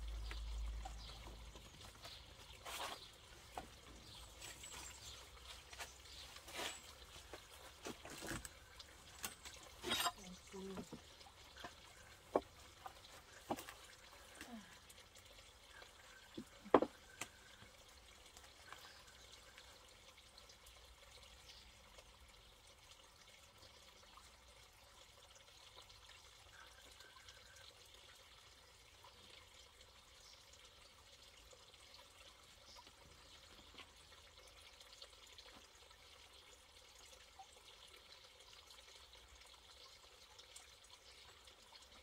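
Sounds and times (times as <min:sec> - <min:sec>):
knocks and clatters of handling: 0:16.4 - 0:17.0.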